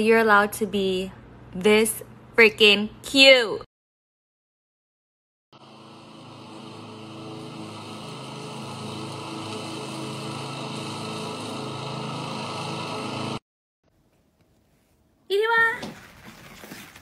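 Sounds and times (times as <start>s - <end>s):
lawn mower engine running: 5.6s - 13.4s.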